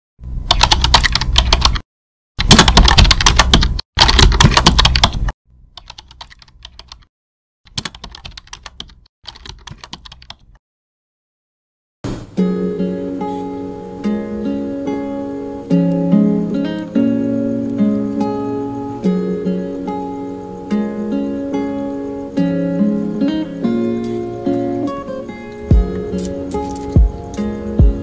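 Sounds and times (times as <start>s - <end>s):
computer keyboard typing: 0.5s - 1.8s, 2.4s - 7.1s, 7.7s - 10.6s
acoustic guitar music: 12.1s - 28.0s.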